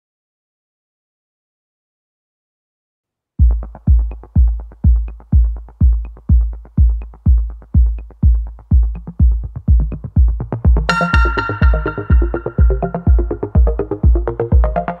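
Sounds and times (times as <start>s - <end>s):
deep kick drum: 3.4s - 15.0s
electronic music: 3.4s - 15.0s.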